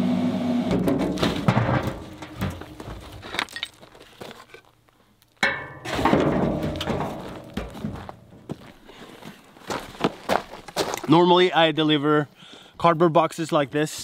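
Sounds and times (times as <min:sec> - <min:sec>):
wood knocking and clattering: 0:00.7 - 0:03.8, 0:05.4 - 0:08.6.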